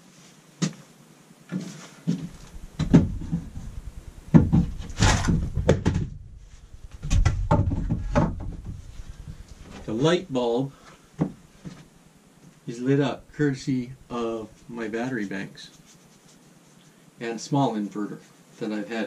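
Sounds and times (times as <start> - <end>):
low rumble of handling: 2.2 - 12.1, 12.8 - 16.4
wooden boards knocking: 2.5 - 6.3, 6.9 - 9.4.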